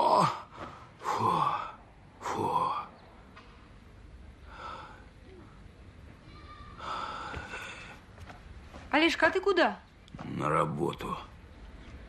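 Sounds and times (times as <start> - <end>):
man groaning: 0.0 - 2.9.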